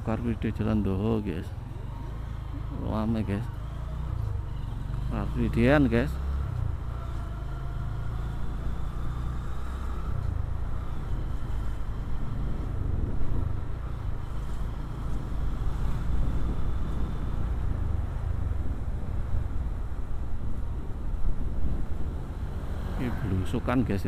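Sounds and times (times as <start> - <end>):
wind on microphone: 16.1 - 22.5.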